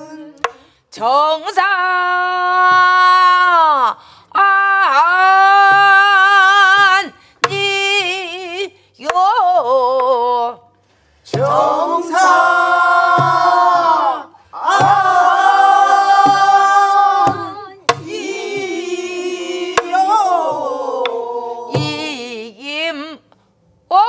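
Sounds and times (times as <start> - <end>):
group singing folk song in unison: 11.2 - 22.3
deep drum thumps: 11.3 - 13.9, 14.6 - 20.8, 21.7 - 22.3.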